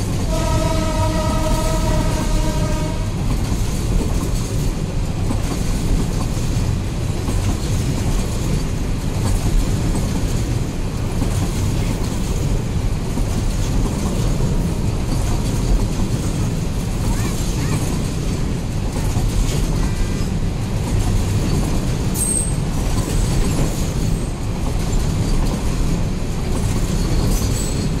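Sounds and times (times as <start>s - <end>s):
train wheels rumbling on rails: 0.0s - 28.0s
train horn: 0.2s - 3.2s.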